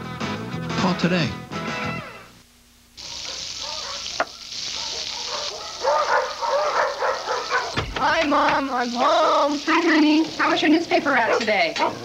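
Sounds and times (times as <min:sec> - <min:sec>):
food sizzling in frying pan: 0:02.9 - 0:12.0
dog barking: 0:03.0 - 0:07.8, 0:11.2 - 0:12.0.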